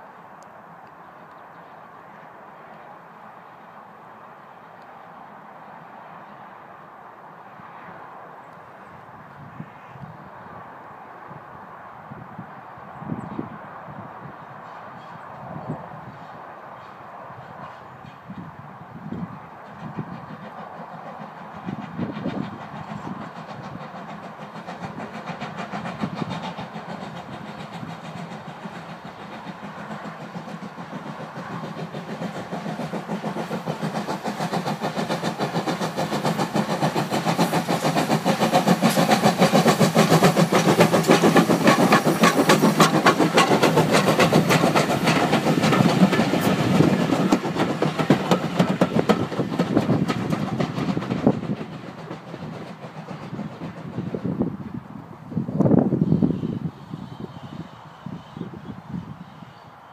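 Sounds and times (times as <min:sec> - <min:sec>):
steam locomotive exhaust beats: 0:17.3 - 0:59.9
carriages rolling past: 0:26.7 - 0:54.4.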